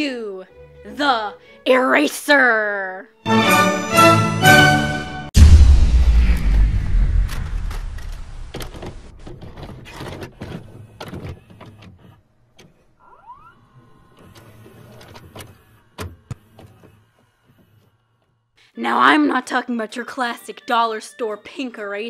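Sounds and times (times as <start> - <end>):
deep boom: 5.3 - 9.5
short rising whine: 5.4 - 9.2.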